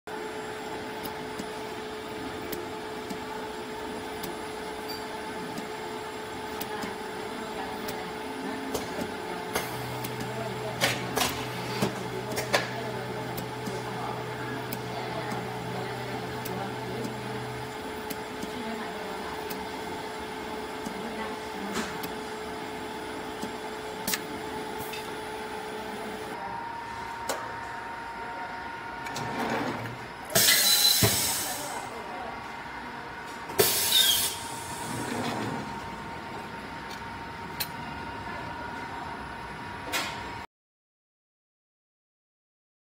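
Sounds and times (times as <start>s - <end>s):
dispensing machine hum and whir: 0.1s - 40.5s.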